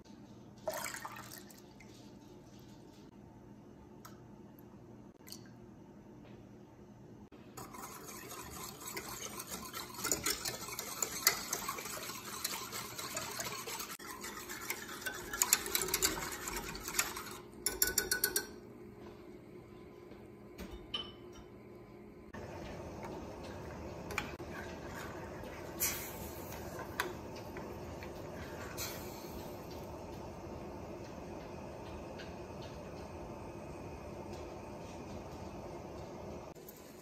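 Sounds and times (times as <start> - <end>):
whisk swishing in saucepan: 7.6 - 18.5, 22.3 - 31.3.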